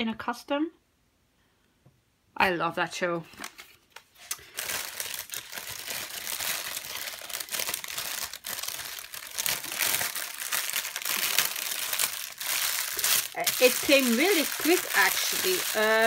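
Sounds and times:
plastic bags crinkling: 0:03.4 - 0:16.0.

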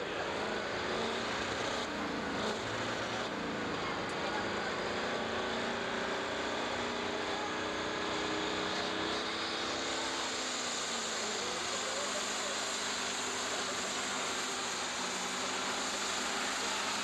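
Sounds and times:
diesel engine droning under load: 0:00.0 - 0:17.0.

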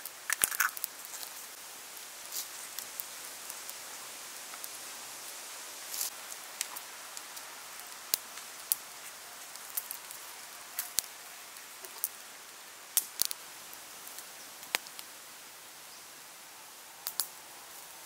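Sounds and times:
fire popping and snapping: 0:00.0 - 0:04.8, 0:05.8 - 0:12.2, 0:12.9 - 0:15.1, 0:17.0 - 0:17.3
wood fire crackling: 0:00.0 - 0:18.0.

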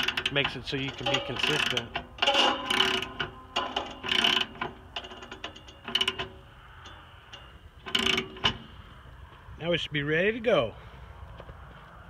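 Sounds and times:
ratchet wrench clicking: 0:00.0 - 0:08.5.

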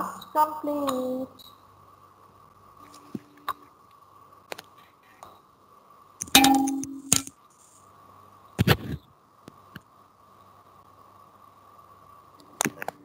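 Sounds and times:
faint steady hum: 0:00.0 - 0:13.0
sharp clicks: 0:06.2 - 0:07.3.

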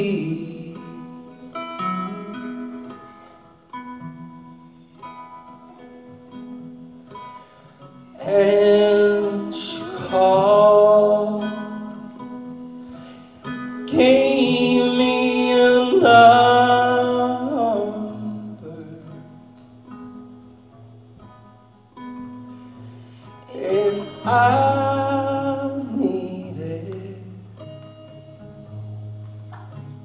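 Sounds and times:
person singing: 0:00.0 - 0:03.0, 0:08.1 - 0:12.6, 0:13.4 - 0:19.4, 0:23.4 - 0:27.6.

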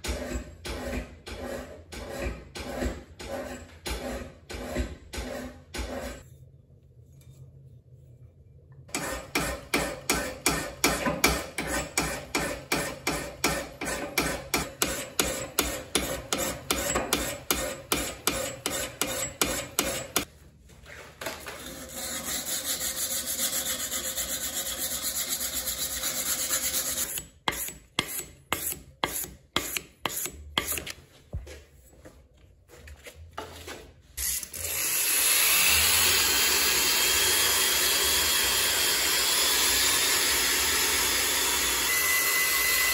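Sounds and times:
sandpaper rubbing on steel: 0:21.6 - 0:30.8
electric drill with abrasive wheel: 0:34.2 - 0:42.9.

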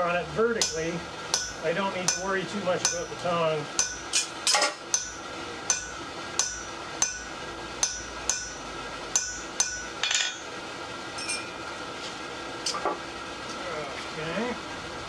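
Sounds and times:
hammer striking steel punch: 0:00.6 - 0:10.5
steel tools clattering on anvil: 0:03.8 - 0:05.1, 0:09.2 - 0:10.5, 0:11.2 - 0:11.6.

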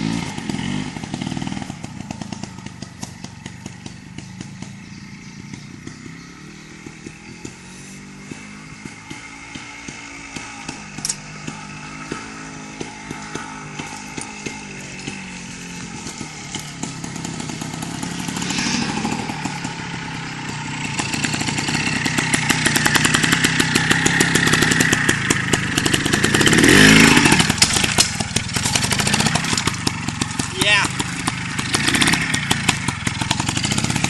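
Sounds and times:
two-stroke motorcycle engine revving: 0:00.0 - 0:34.0.

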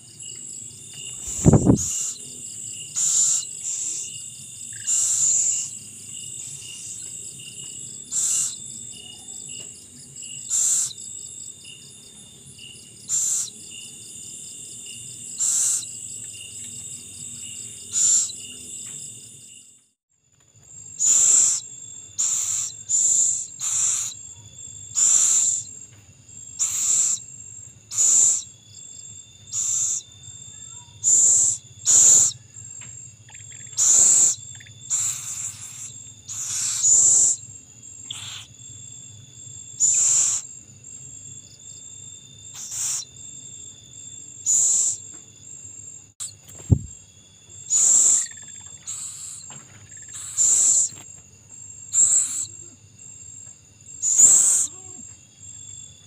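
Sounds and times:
crickets and insects ringing: 0:00.0 - 0:56.0
owlet raspy hissing calls: 0:01.3 - 0:02.2, 0:03.0 - 0:04.1, 0:04.8 - 0:05.7, 0:08.1 - 0:08.6, 0:10.5 - 0:11.0, 0:13.1 - 0:13.5, 0:15.4 - 0:15.9, 0:17.9 - 0:18.3, 0:21.0 - 0:21.6, 0:22.2 - 0:24.2, 0:25.0 - 0:25.7, 0:26.6 - 0:27.2, 0:27.9 - 0:28.5, 0:29.5 - 0:30.0, 0:31.0 - 0:32.4, 0:33.8 - 0:37.4, 0:38.1 - 0:38.5, 0:39.8 - 0:40.5, 0:42.5 - 0:43.1, 0:44.5 - 0:45.0, 0:47.7 - 0:49.5, 0:50.1 - 0:50.9, 0:51.9 - 0:52.6, 0:54.0 - 0:54.9.

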